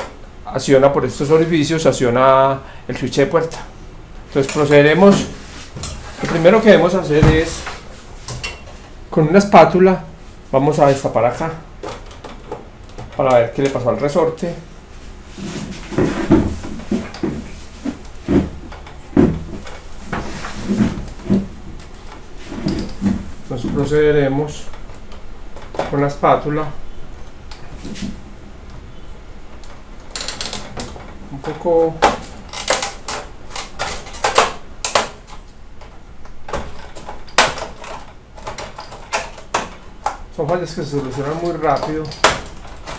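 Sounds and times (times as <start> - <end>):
plastic clips snapping: 32.0 - 35.4.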